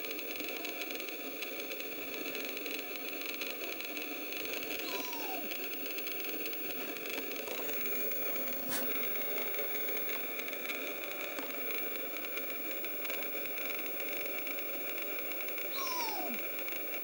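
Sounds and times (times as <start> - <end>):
faint high tone: 4.8 - 5.4, 15.7 - 16.4.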